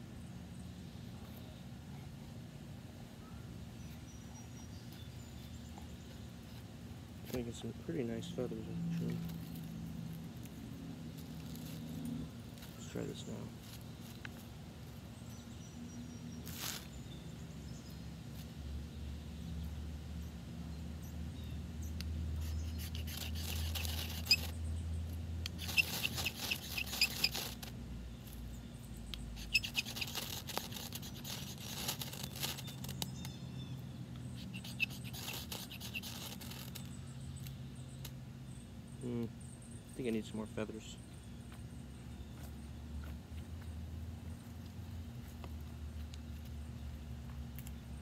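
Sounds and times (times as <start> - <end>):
ferro rod scraped with striker: 22.4 - 24.6, 25.4 - 27.7, 29.4 - 33.2, 34.4 - 36.9.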